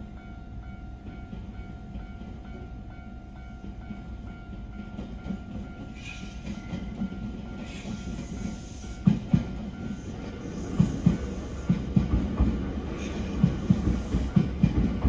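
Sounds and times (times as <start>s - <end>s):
level-crossing alarm ringing: 0.0s - 11.8s
train wheel and rail rumble: 0.0s - 15.0s
train wheels clacking over rail joints: 4.8s - 15.0s.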